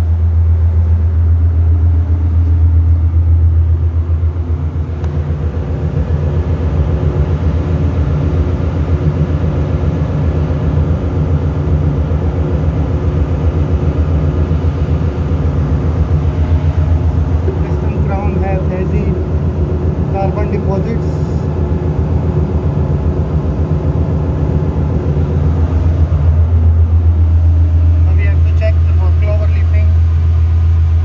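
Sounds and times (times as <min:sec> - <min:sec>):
engine room machinery drone: 0:00.0 - 0:31.0.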